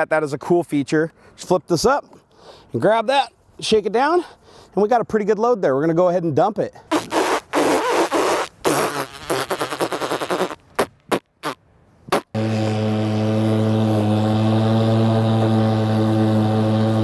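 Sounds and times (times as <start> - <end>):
low droning music: 12.4 - 17.0.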